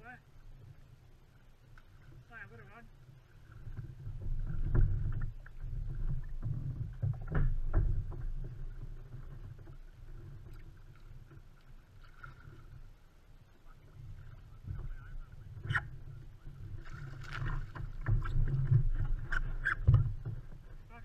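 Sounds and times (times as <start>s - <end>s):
water sloshing against hull: 0.0s - 21.0s
knocks on hull: 4.1s - 9.8s, 17.2s - 20.6s.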